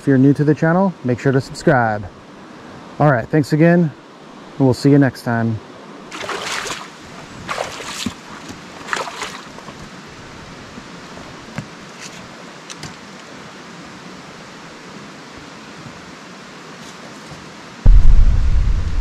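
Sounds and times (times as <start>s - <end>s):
river water rushing: 5.6s - 16.6s
noisy bursts: 17.8s - 19.0s.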